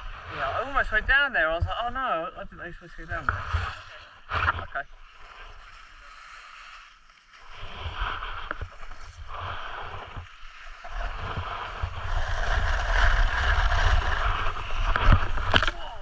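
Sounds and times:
snowboard scraping over snow: 0:07.4 - 0:16.0.

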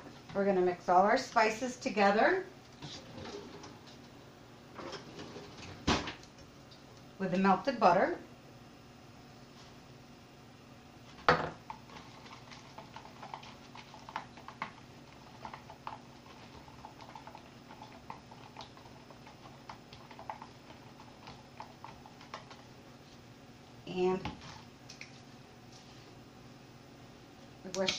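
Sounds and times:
utensil stirring in bowl: 0:11.6 - 0:23.2.

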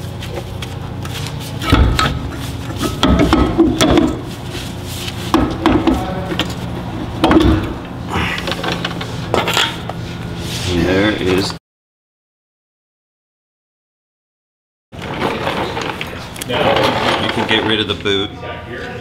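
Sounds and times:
steady low hum: 0:00.0 - 0:11.6
metal tools knocking and rattling: 0:01.6 - 0:04.3.

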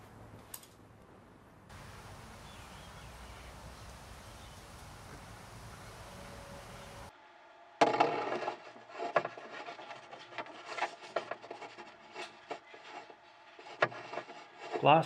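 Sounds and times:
paintbrush scratchy rubbing: 0:08.8 - 0:15.0.

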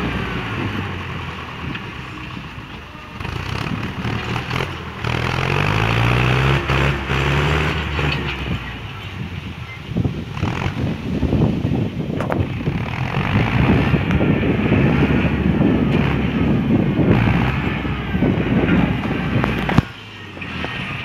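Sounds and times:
tractor diesel engine under load: 0:00.0 - 0:21.0.

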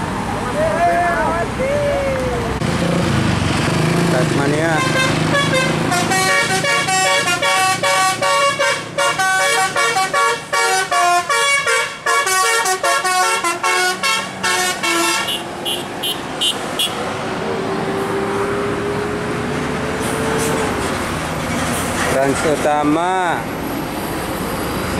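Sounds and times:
bus engine running: 0:00.0 - 0:24.9
multi-note bus horn tune: 0:04.7 - 0:17.0.

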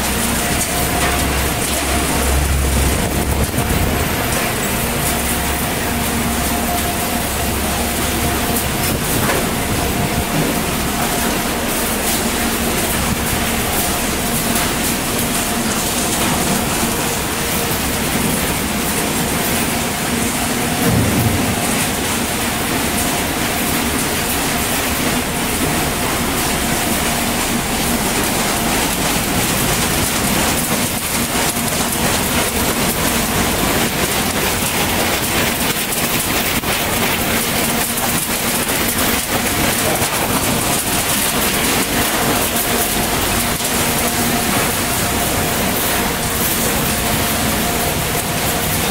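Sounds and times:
faint machine hum: 0:00.0 - 0:48.9
sorting line machinery running: 0:00.0 - 0:48.9
loud machine knock: 0:20.6 - 0:24.1.

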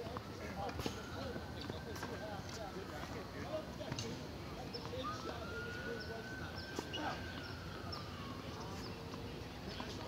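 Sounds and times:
siren wailing: 0:00.8 - 0:03.0, 0:05.0 - 0:08.9.

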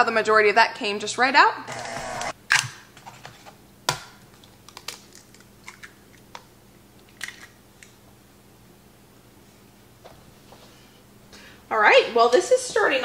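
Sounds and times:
eggshells cracking: 0:04.6 - 0:07.6.

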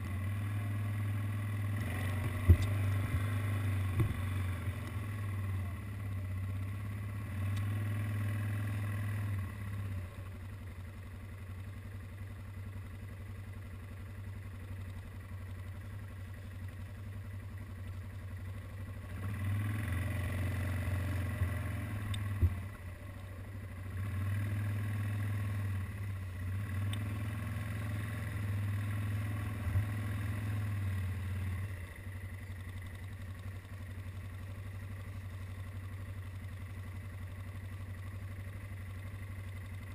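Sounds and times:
quad bike engine revving: 0:00.0 - 0:10.2, 0:18.9 - 0:22.9, 0:23.7 - 0:31.8.

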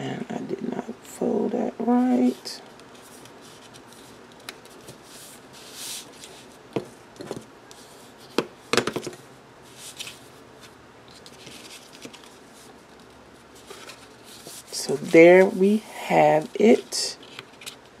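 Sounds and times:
paper rustling and crinkling: 0:09.7 - 0:15.5, 0:17.2 - 0:18.0.

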